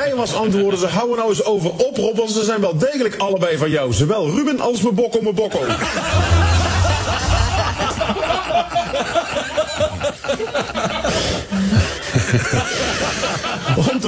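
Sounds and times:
people laughing: 5.5 - 14.0.

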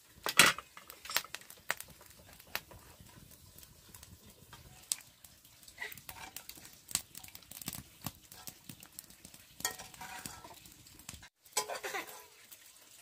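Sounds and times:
kitchen utensils clinking: 9.6 - 10.7, 11.5 - 12.4.

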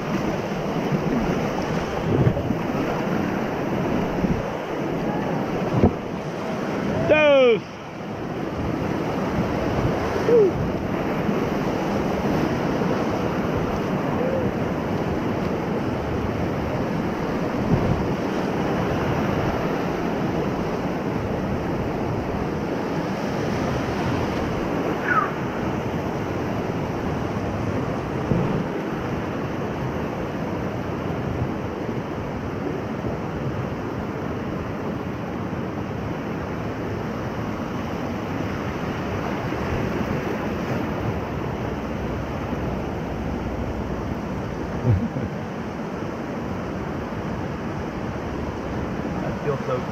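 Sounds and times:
wind buffeting microphone: 0.0 - 34.6
whitewater rapids rushing: 0.0 - 49.9.

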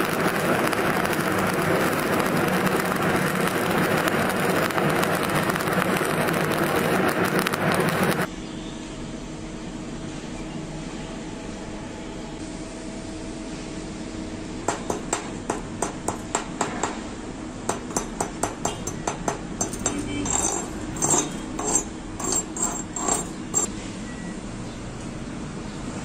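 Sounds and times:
chipping hammer tapping metal: 0.0 - 8.3, 14.7 - 17.0, 17.7 - 23.7
hammer scraping along weld bead: 0.0 - 8.3, 14.7 - 17.0, 17.7 - 23.7.

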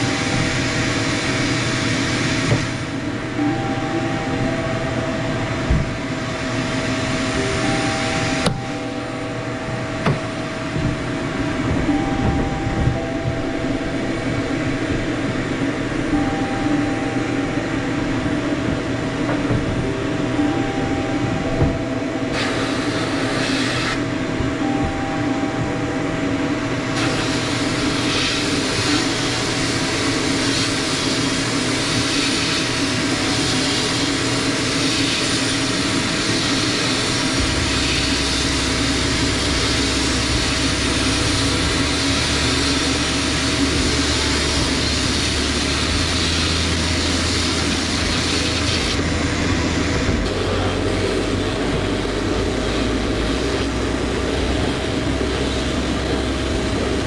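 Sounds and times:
sandblasting hiss: 0.0 - 3.1, 22.3 - 24.0, 26.9 - 57.0
low drone: 0.0 - 57.0
machine hum: 0.0 - 57.0.

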